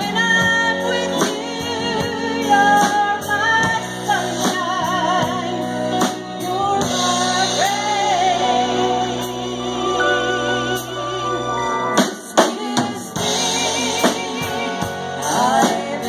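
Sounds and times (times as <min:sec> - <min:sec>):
drum kit beat: 0:00.0 - 0:16.0
keyboard: 0:00.0 - 0:16.0
woman singing: 0:00.0 - 0:16.0.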